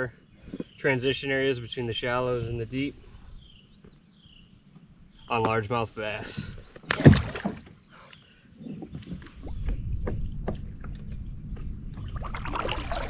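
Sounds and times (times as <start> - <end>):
water sloshing against kayak: 6.1 - 13.0.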